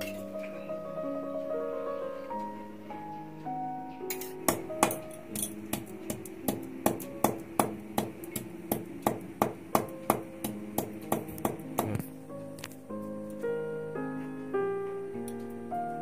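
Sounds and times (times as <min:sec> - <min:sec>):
soft piano music: 0:00.0 - 0:16.0
pounder striking concrete floor: 0:04.5 - 0:05.1, 0:05.7 - 0:12.0.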